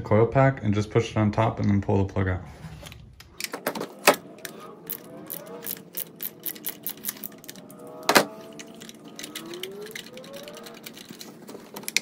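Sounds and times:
socket clicking turned by hand: 3.4s - 12.0s
ratchet wrench clicking: 4.9s - 7.6s.

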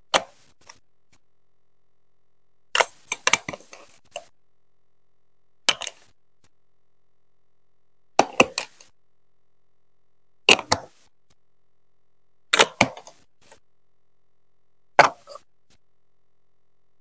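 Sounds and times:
plastic blocks clicking: 5.7s - 6.1s, 8.2s - 8.9s.

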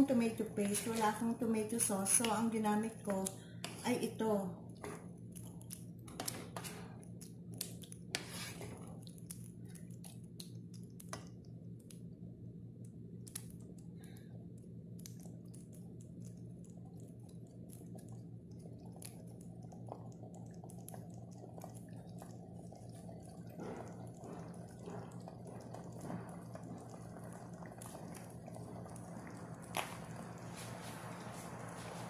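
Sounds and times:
steady low hum: 0.0s - 32.0s
small crackling pops: 4.7s - 8.3s, 8.9s - 12.2s, 12.8s - 30.5s
sauce simmering in a frying pan: 4.8s - 32.0s
wooden spoon scraping a pan: 8.2s - 8.8s.

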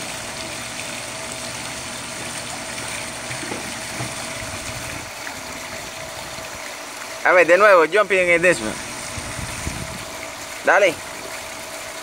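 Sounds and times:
waterfall pouring into pool: 0.0s - 9.0s.

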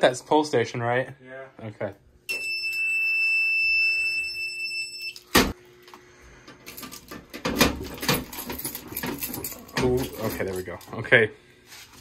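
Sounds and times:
fire alarm high-pitched tone: 2.3s - 5.4s.

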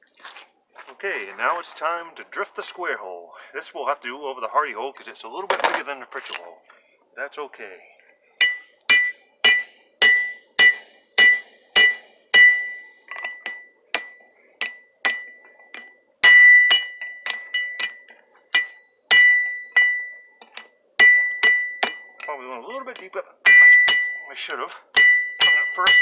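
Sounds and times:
hammer blows ringing on hot iron: 8.4s - 22.4s, 23.0s - 26.0s.

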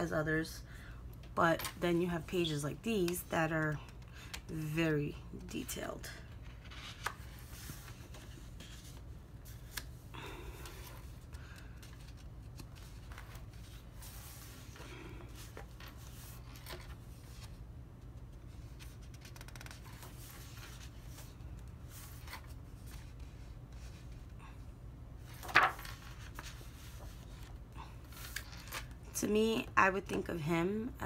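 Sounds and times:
low steady hum: 0.0s - 31.0s
paper pages rustling: 6.2s - 10.0s, 10.7s - 24.3s, 25.2s - 29.0s.

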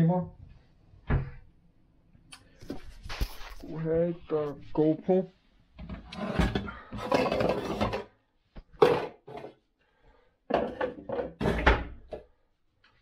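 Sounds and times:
kitchenware clattering: 6.2s - 8.1s, 8.7s - 9.6s, 10.5s - 12.2s.

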